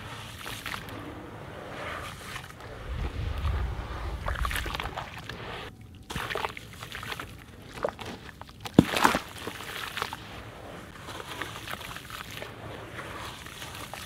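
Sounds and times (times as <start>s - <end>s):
grit splashing into water: 3.2s - 10.3s.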